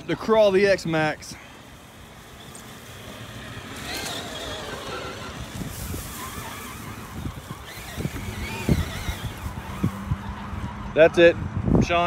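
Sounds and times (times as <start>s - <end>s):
electric motor whine: 1.7s - 11.0s.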